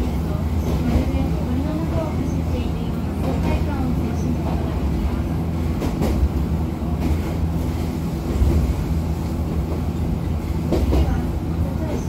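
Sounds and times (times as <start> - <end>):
train rumbling on track: 0.0 - 12.0.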